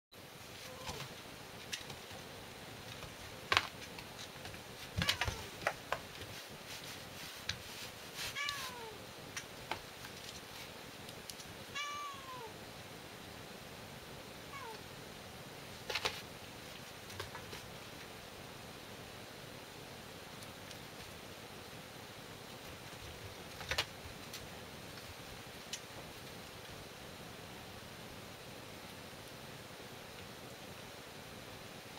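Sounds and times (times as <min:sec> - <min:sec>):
kitten meowing: 0:08.4 - 0:09.0, 0:11.8 - 0:12.5, 0:14.5 - 0:14.8.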